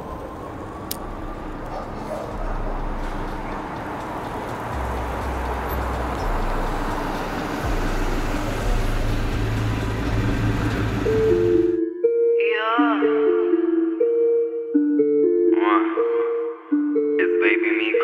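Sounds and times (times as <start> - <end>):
deep sustained bass notes: 5.1 - 11.9.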